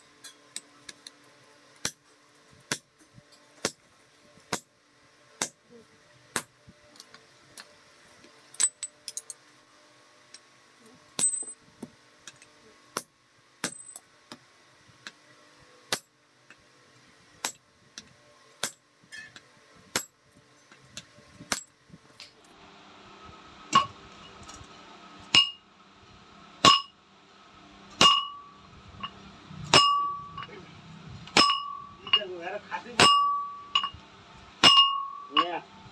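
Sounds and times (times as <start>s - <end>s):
hammer tapping on anvil: 23.8s - 24.0s, 25.3s - 25.6s, 26.6s - 27.0s, 28.0s - 30.5s, 31.3s - 32.3s, 33.0s - 34.0s, 34.6s - 35.6s
hammer clanging on anvil: 25.3s - 25.6s, 26.6s - 26.9s, 28.0s - 28.5s, 29.7s - 30.5s, 31.4s - 32.3s, 33.0s - 34.0s, 34.6s - 35.6s.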